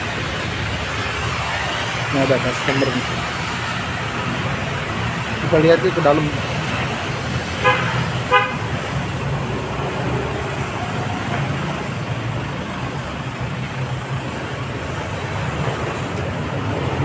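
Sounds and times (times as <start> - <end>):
traffic rumble: 0.0 - 17.0
vehicle horn toots: 7.6 - 8.8.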